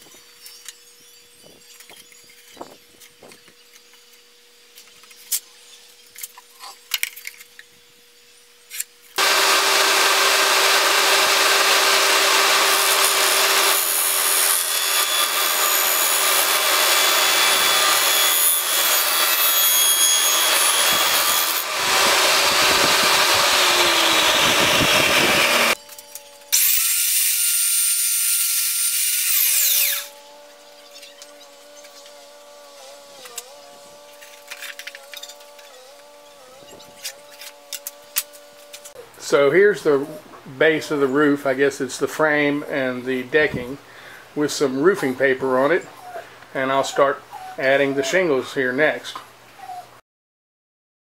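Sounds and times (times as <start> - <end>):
power tool whining: 8.7 - 39.0
table saw cutting board: 9.1 - 39.0.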